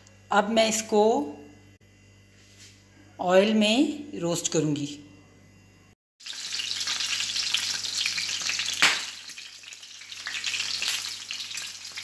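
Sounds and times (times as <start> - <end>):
meat sizzling in oil: 6.2 - 12.0.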